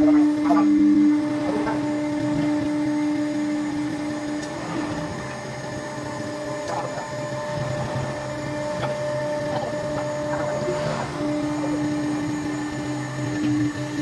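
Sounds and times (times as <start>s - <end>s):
router spindle whine: 0.0s - 14.0s
rough cutting noise: 4.3s - 13.6s.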